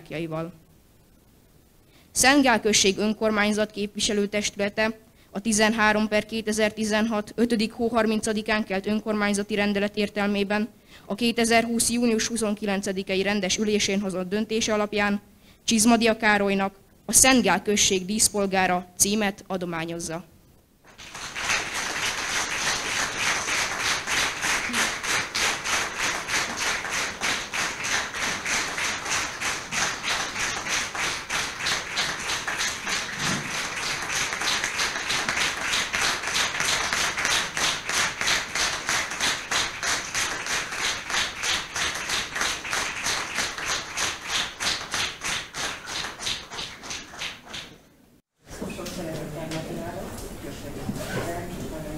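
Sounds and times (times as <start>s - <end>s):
audience clapping in rhythm: 20.9s - 47.8s.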